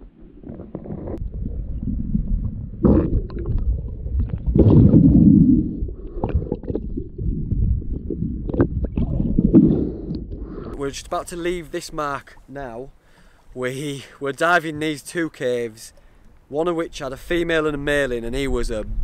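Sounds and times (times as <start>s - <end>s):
gurgling bubbles: 0.0s - 10.8s
underwater rumbling water: 0.0s - 10.8s
underwater clicks: 2.2s - 10.7s.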